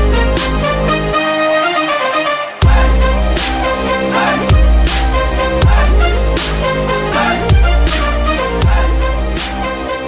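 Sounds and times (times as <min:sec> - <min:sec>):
heavy bass note: 0:02.6 - 0:09.5.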